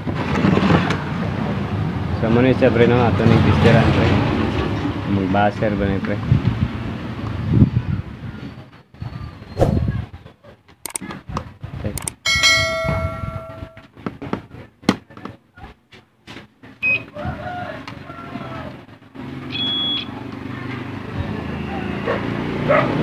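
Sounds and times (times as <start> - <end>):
small tools clicking and knocking: 10.8 - 11.1, 12.0 - 12.6
ringing metallic strike: 12.2 - 13.8.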